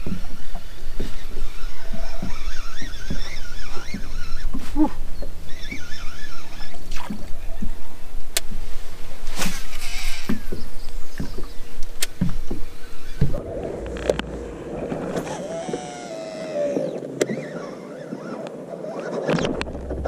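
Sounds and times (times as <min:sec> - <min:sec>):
boat knocks and splashes: 0:00.0 - 0:08.6, 0:09.4 - 0:16.0, 0:19.4 - 0:20.0
wind rumbling on microphone: 0:00.0 - 0:20.0
steady hum: 0:12.0 - 0:17.2.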